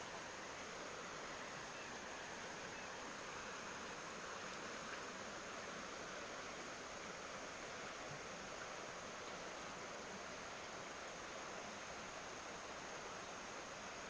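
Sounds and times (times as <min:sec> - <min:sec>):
stream water flowing: 0:00.0 - 0:14.0.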